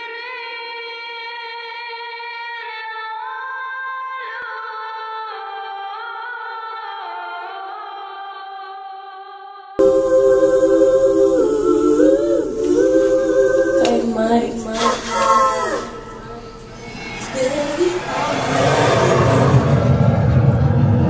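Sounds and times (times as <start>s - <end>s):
vocal music track: 0.0s - 20.7s
high voice singing: 9.8s - 19.9s.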